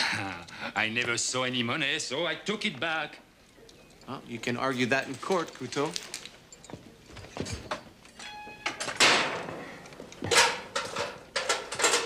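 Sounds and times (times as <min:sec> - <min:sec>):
metal door clanging shut: 0:08.7 - 0:12.0.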